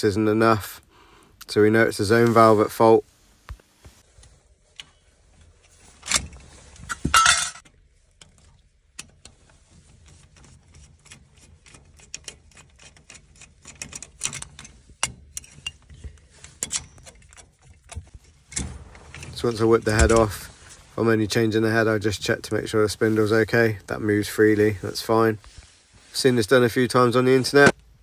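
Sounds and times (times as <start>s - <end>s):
metal cover scraping clatter: 6.0s - 7.7s.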